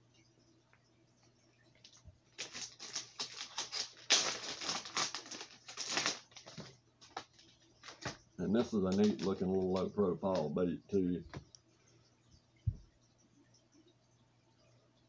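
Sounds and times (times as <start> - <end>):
plastic packaging crinkling: 1.8 - 10.5.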